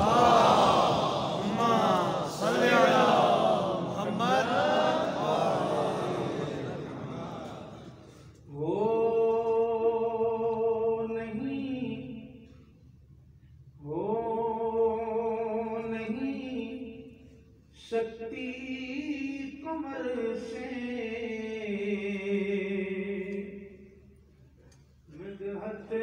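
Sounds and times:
person chanting: 0.0s - 10.5s.

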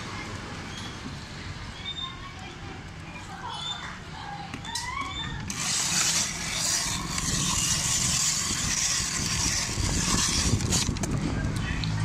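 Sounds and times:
ice scraping over blade: 5.5s - 11.0s.

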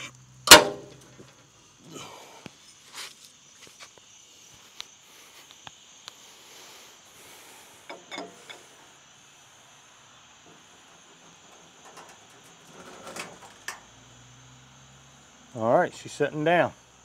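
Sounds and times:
steady high hiss: 0.0s - 17.0s
light knocks: 10.5s - 13.9s.

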